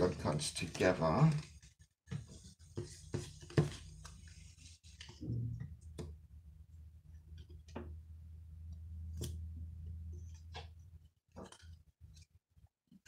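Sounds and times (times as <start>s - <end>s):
cards and plastic sleeves rustling: 0.0s - 5.1s.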